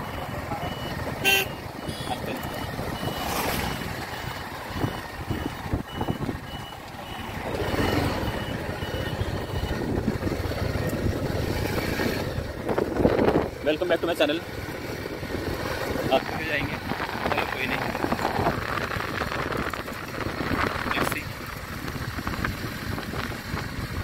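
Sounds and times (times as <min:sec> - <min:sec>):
motorbike engine and road rumble: 0:00.0 - 0:24.0.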